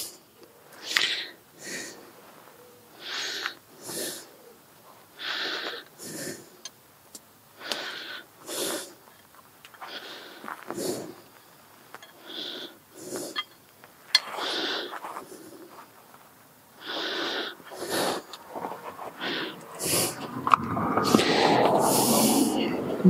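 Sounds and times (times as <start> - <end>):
short hissing air puffs: 19.1 - 20.3.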